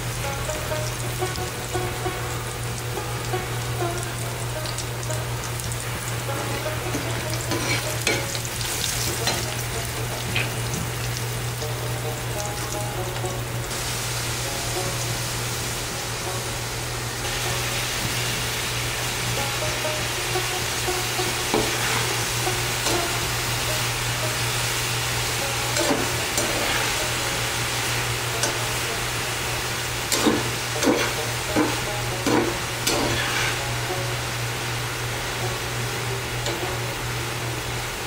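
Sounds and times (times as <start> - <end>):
oil sizzling in frying pan: 0.0 - 38.0
spatula scraping pan: 6.3 - 8.4, 21.5 - 22.2, 25.7 - 27.2, 30.1 - 33.7.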